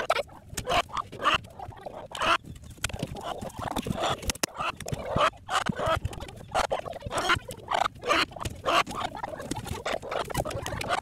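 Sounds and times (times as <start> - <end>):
hens clucking: 0.0 - 11.0.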